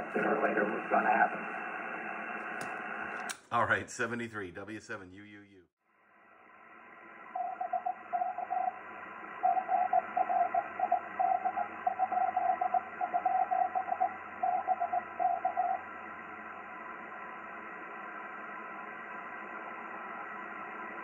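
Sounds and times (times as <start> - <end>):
radio receiver hiss: 0.0 - 3.3, 6.8 - 21.0
morse code tone beeping: 9.4 - 15.8.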